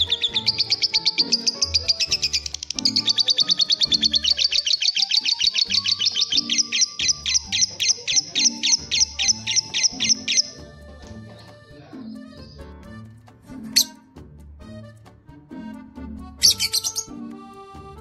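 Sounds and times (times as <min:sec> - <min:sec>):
lovebird chirping: 0:00.0 - 0:10.6, 0:13.8 - 0:14.0, 0:16.4 - 0:17.2.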